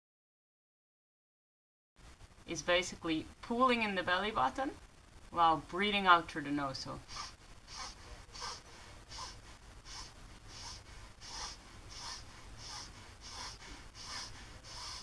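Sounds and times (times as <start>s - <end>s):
woman forcefully exhaling through nose: 7.1s - 15.0s.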